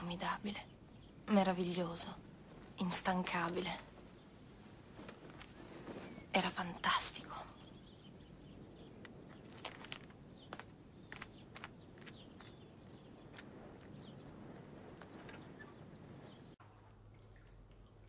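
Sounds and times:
low steady hiss: 0:00.0 - 0:11.0.

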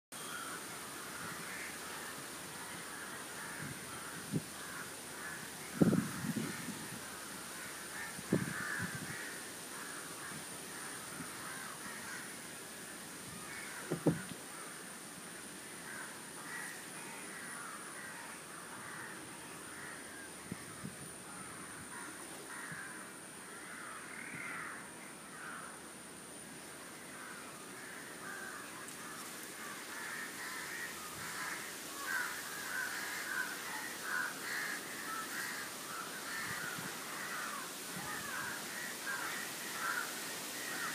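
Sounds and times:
crows cawing: 0:00.2 - 0:12.6, 0:13.3 - 0:14.9, 0:15.8 - 0:25.8, 0:27.0 - 0:40.9
bird calls: 0:13.3 - 0:14.9.

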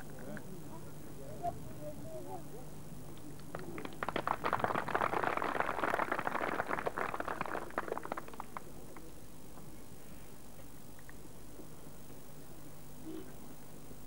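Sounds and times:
audience applauding: 0:03.5 - 0:08.7.

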